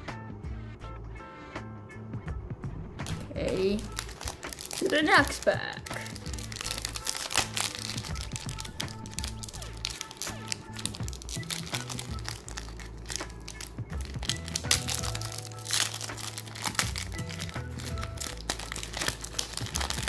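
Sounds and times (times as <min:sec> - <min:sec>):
background music with bass: 0:00.0 - 0:20.0
foil wrapper crinkling: 0:03.0 - 0:20.0.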